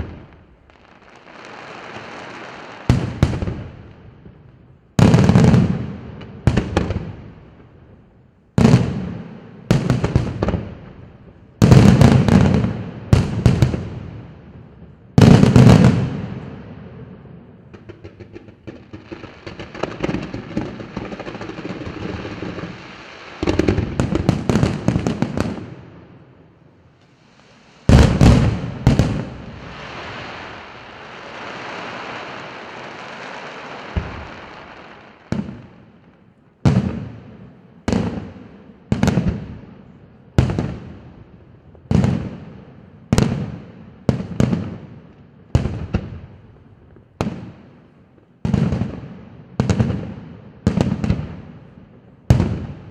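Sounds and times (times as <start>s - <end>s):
firework bangs: 0.0s - 4.4s, 5.0s - 7.3s, 8.6s - 26.3s, 26.9s - 41.0s, 52.3s - 52.9s
fireworks crackling: 0.0s - 7.7s, 8.6s - 37.2s.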